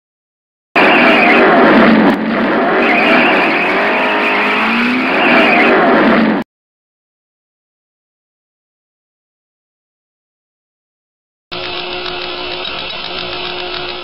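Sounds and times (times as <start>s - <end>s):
motorcycle engine revving: 0.8s - 6.4s.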